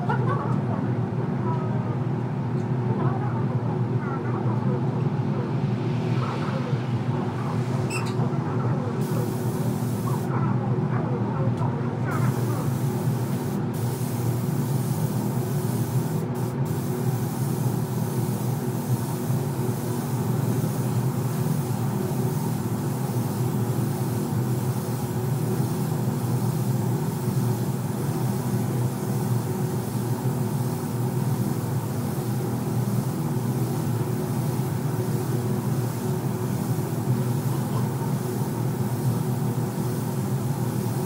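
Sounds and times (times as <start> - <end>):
spray gun hissing: 9.0 - 10.3, 12.1 - 41.0.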